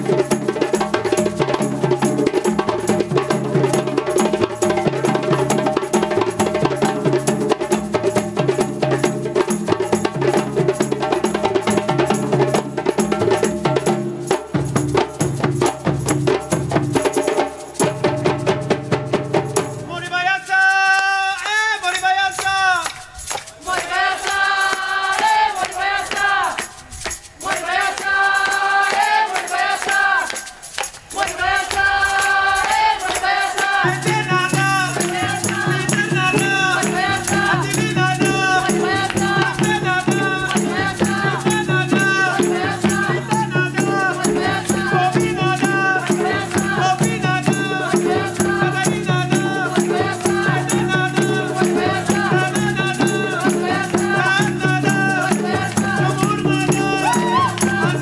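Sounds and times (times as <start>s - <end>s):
drums: 0.0s - 20.3s, 32.7s - 58.0s
rattling shakers: 0.0s - 58.0s
person singing: 23.6s - 58.0s.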